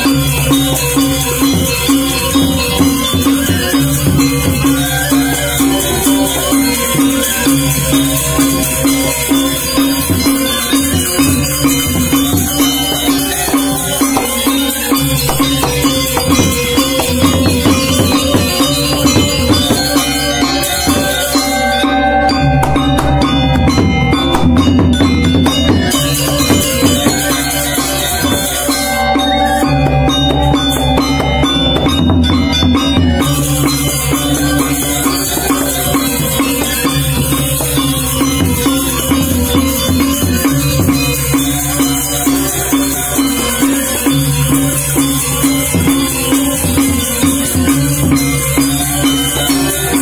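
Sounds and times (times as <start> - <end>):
clashing cymbals: 0.0 - 50.0
drums: 0.0 - 50.0
metallophones ringing: 0.0 - 50.0.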